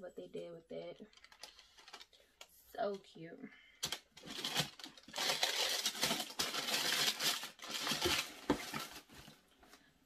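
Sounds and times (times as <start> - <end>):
tissue paper crinkling: 1.1 - 2.1, 4.2 - 9.4.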